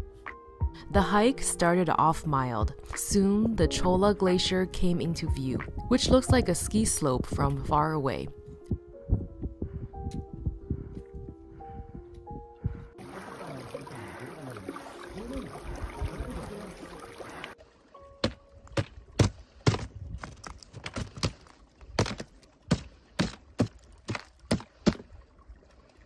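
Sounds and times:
wind on microphone: 0:08.4 - 0:13.0, 0:19.8 - 0:20.5
footsteps on snow and rock: 0:18.3 - 0:24.8.

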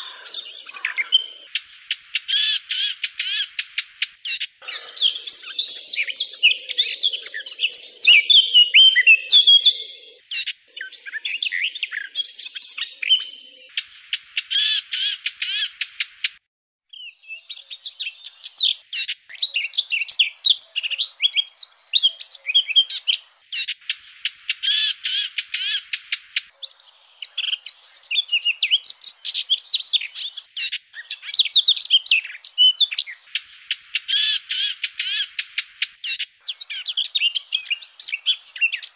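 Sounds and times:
bird warbling song: 0:00.0 - 0:38.9.

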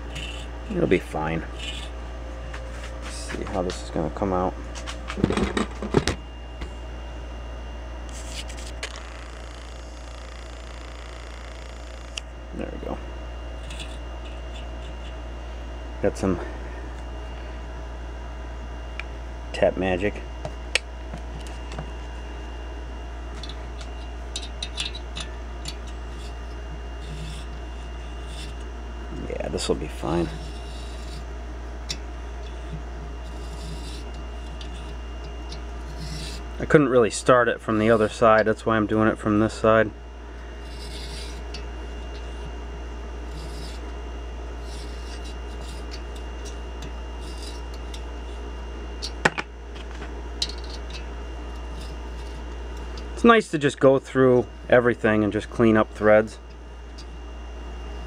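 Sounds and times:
steady low hum: 0:00.0 - 0:58.0
thread tap scraping metal: 0:00.1 - 0:00.5, 0:01.5 - 0:01.9, 0:13.6 - 0:15.2, 0:23.3 - 0:28.7, 0:30.2 - 0:36.4, 0:40.6 - 0:42.6, 0:43.2 - 0:44.0, 0:44.6 - 0:48.4, 0:49.0 - 0:53.1.

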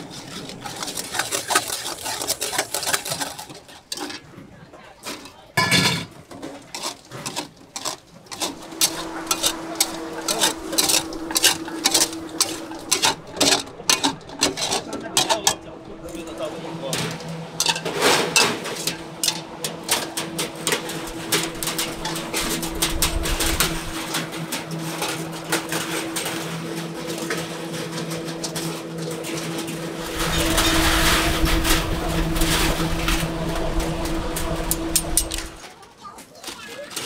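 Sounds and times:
steady equipment hum: 0:08.1 - 0:35.8
low rumble: 0:08.5 - 0:35.6.

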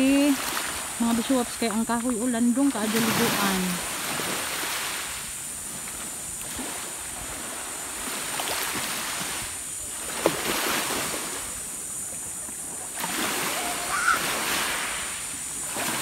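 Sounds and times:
seawater swishing and lapping: 0:00.0 - 0:16.0.

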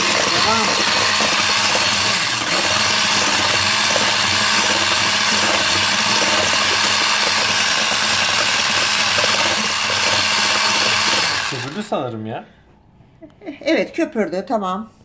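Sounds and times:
electric mixer whisking: 0:00.0 - 0:12.0.

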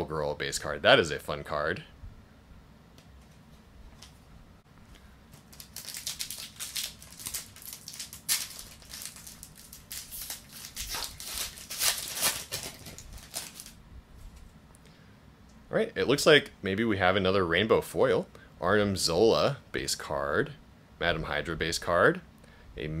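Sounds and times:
foil wrapper tearing and crinkling: 0:05.4 - 0:13.8.

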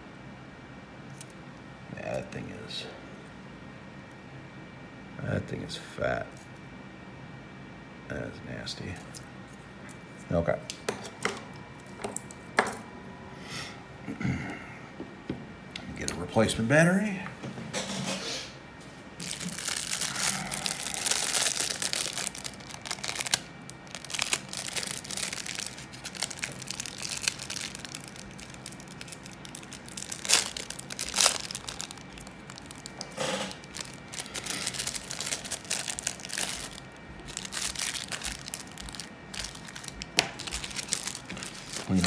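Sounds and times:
adhesive tape crinkling and tearing: 0:19.2 - 0:42.0.

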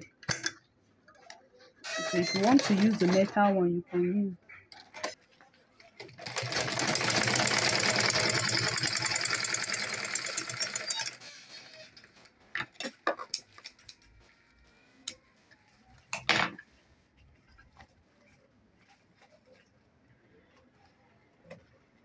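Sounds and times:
sewing machine stitching: 0:01.9 - 0:03.3, 0:06.0 - 0:11.8.

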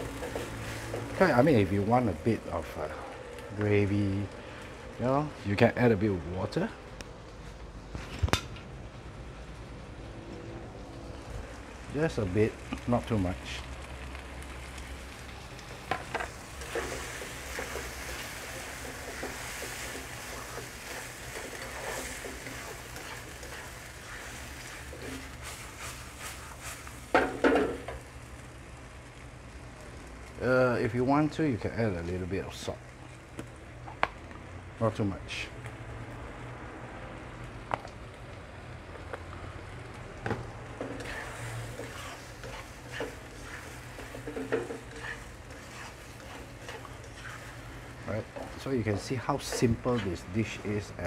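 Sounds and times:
spatula stirring and scraping: 0:00.0 - 0:01.4, 0:15.2 - 0:27.8, 0:40.8 - 0:51.0
food sizzling in a wok: 0:00.0 - 0:06.4, 0:08.8 - 0:51.0.

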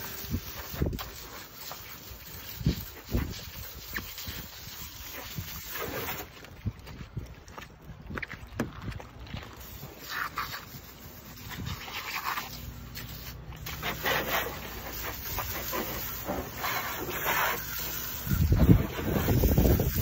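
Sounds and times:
hose nozzle spraying water: 0:00.0 - 0:06.4, 0:09.6 - 0:20.0
wind rumble on microphone: 0:02.3 - 0:09.6, 0:18.2 - 0:20.0.

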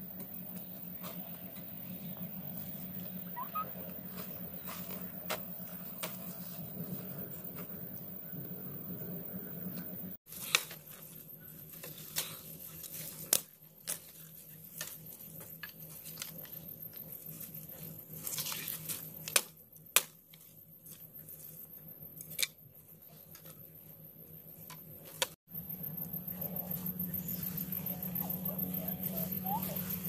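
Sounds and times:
dry grass rustling: 0:00.3 - 0:07.7, 0:10.3 - 0:25.3
stalks snapping: 0:11.8 - 0:14.2, 0:18.2 - 0:20.4, 0:22.2 - 0:22.6.

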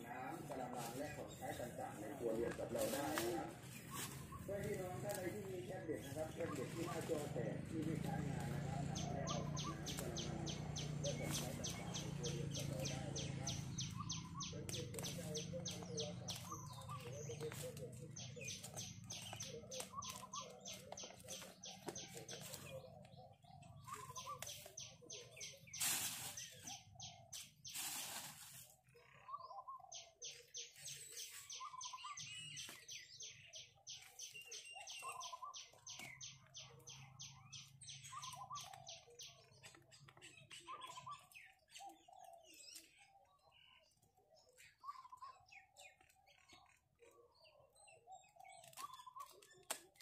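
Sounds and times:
high chirps of birds: 0:00.0 - 0:50.0
rustling: 0:25.5 - 0:26.8, 0:27.4 - 0:28.8.

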